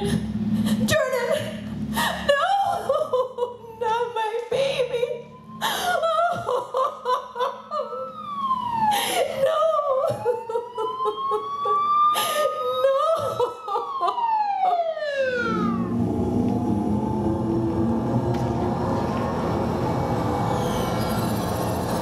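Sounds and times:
ambulance siren wailing: 0:02.6 - 0:22.0
low rumble: 0:15.2 - 0:22.0.

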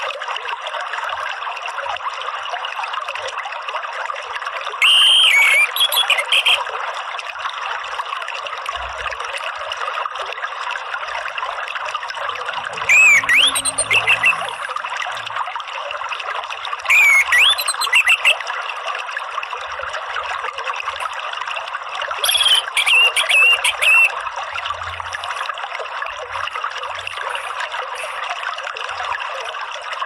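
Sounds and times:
water trickling: 0:00.0 - 0:30.0
thrush whistling song: 0:04.8 - 0:06.6, 0:12.8 - 0:14.7, 0:16.9 - 0:18.4, 0:22.2 - 0:24.2.

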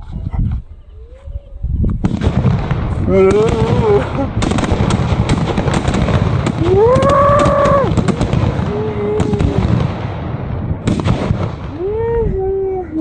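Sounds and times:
firecrackers banging: 0:02.0 - 0:11.9
long rising-and-falling cries: 0:06.6 - 0:07.9.

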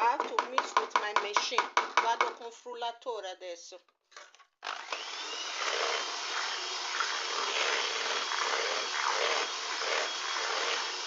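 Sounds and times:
electric hand mixer whine: 0:04.6 - 0:11.0
beaters whisking batter: 0:05.0 - 0:11.0.

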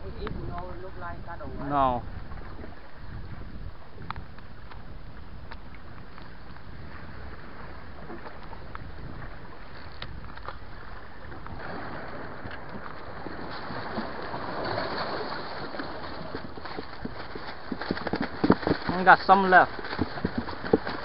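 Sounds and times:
wind rumbling on microphone: 0:00.0 - 0:21.0
faint clicks: 0:04.0 - 0:06.6, 0:09.7 - 0:10.6
water washing against rocks: 0:11.4 - 0:21.0.

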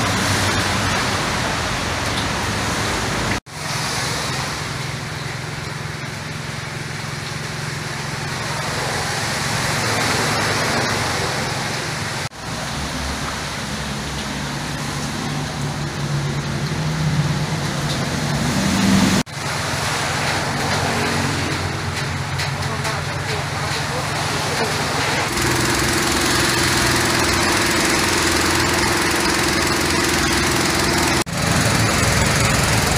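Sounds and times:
heavy rain and floodwater rushing: 0:00.0 - 0:32.9.

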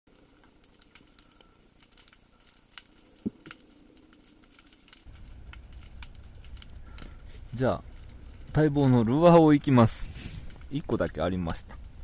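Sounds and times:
underwater crackle of clicks: 0:00.1 - 0:12.0
low rumble: 0:05.1 - 0:12.0.

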